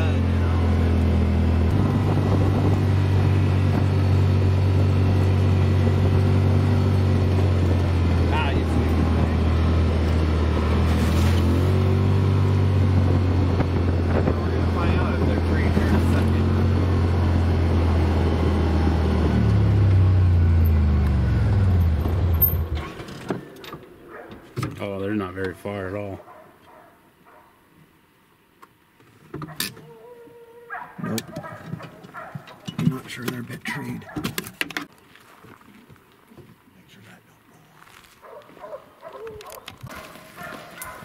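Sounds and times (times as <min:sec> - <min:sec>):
utility vehicle engine droning: 0:00.0 - 0:25.6
tyres on gravel road: 0:00.0 - 0:29.9, 0:30.7 - 0:41.0.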